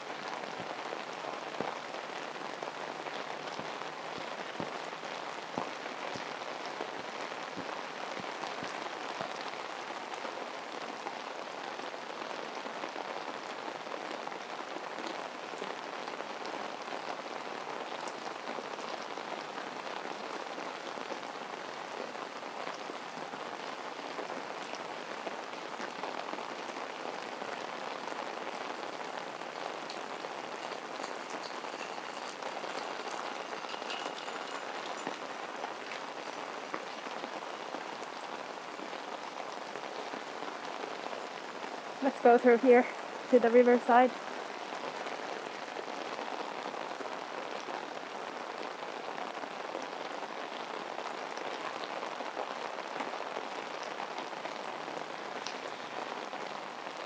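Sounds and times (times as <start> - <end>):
heavy rain falling: 0.0 - 57.0
sharp raindrop hits: 28.2 - 38.4.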